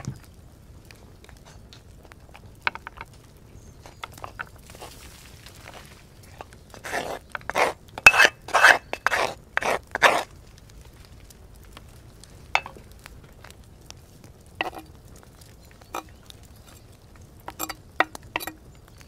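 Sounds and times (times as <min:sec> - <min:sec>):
spoon scraping a pan: 0:06.3 - 0:10.3, 0:12.6 - 0:12.8, 0:14.6 - 0:15.0, 0:15.9 - 0:18.7.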